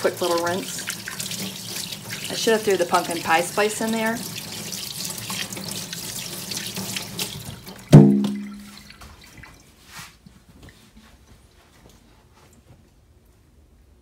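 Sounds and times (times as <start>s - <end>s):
tap running into sink: 6.7s - 9.2s
hands rinsing under water: 7.2s - 9.9s
loud tap clunk: 7.9s - 8.6s.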